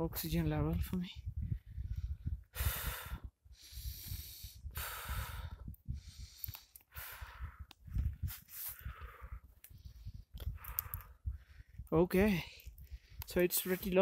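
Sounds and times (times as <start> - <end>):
man breathing hard: 1.5 - 11.8, 12.4 - 13.3.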